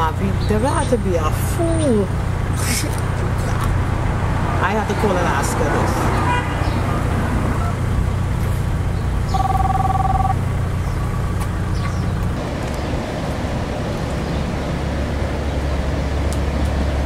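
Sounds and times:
low vehicle engine hum: 0.0s - 17.0s
two-pitch tone: 9.3s - 10.4s.

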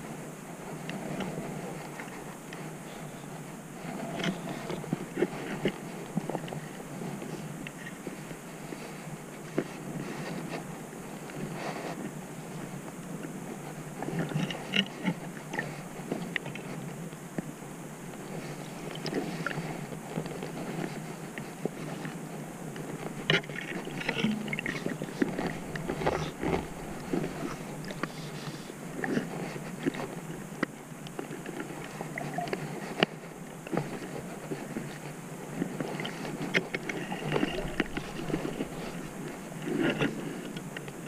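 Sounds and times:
muffled underwater rush: 23.0s - 29.8s, 36.0s - 40.3s.

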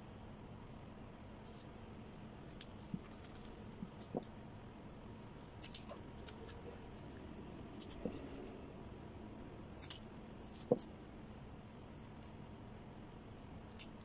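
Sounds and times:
pencil scratching on paper: 5.9s - 8.7s.

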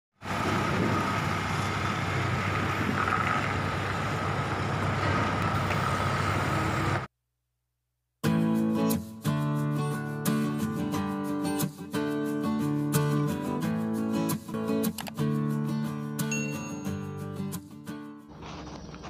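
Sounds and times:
forklift engine running: 0.2s - 7.1s
music: 8.2s - 18.3s
thin high tone: 16.3s - 17.3s.

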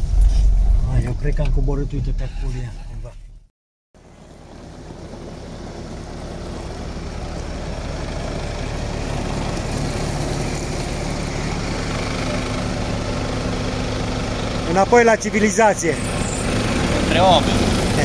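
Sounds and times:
off-road vehicle engine idling: 4.0s - 18.0s.

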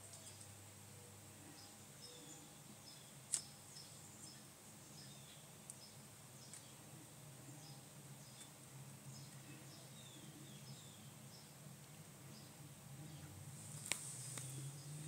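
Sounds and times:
faint low hum: 0.0s - 15.0s.

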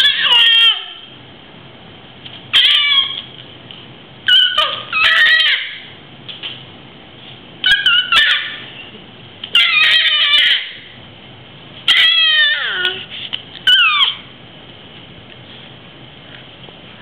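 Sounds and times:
baby squealing: 0.0s - 1.1s, 2.5s - 3.3s, 4.3s - 5.9s, 7.6s - 8.7s, 9.5s - 11.0s, 11.9s - 14.3s.

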